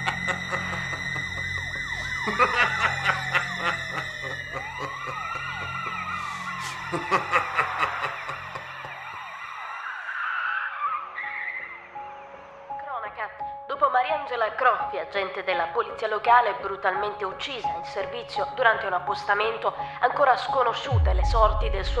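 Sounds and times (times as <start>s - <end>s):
low drone: 0.0s - 9.2s, 20.9s - 22.0s
siren-like wailing tones: 0.0s - 13.3s.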